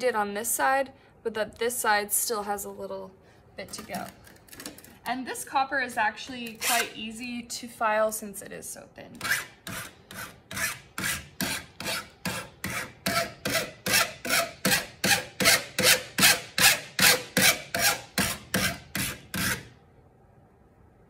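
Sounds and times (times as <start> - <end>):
file rasping on metal plate: 9.2 - 19.7.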